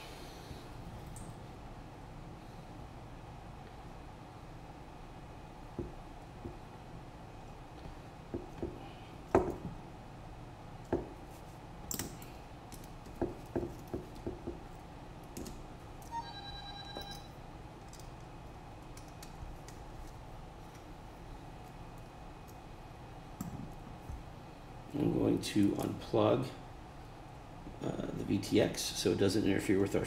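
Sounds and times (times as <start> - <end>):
brief pitched tone: 16.1 - 17.3.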